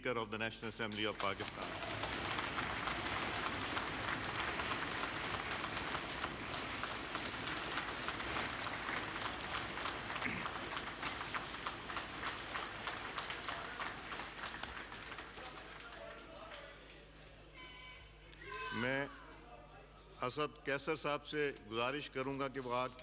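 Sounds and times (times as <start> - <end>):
people applauding: 0.8 - 17.3.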